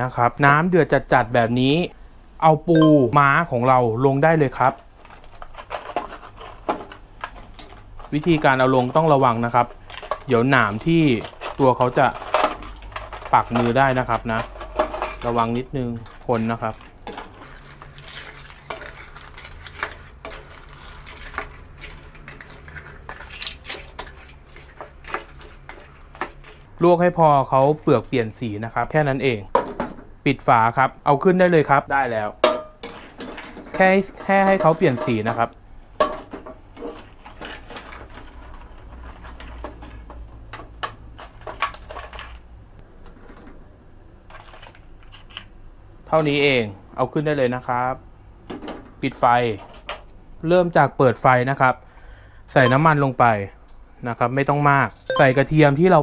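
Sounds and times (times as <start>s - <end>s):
low steady hum: 1.9s - 4.0s, 55.0s - 55.9s.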